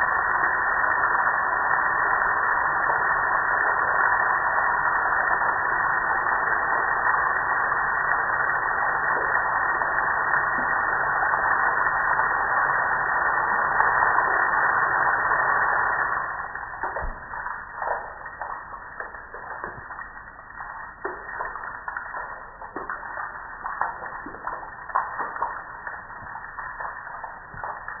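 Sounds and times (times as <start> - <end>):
water dripping onto concrete: 16.5 - 28.0.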